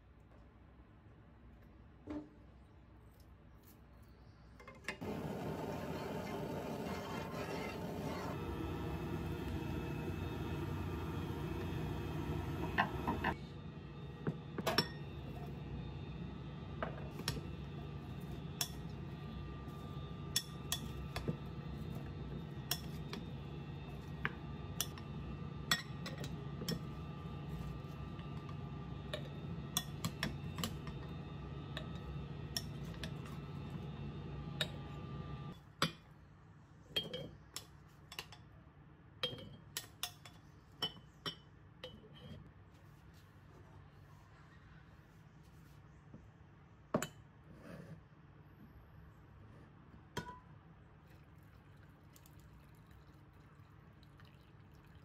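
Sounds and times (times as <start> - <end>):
steady hum: 5.0 - 35.6.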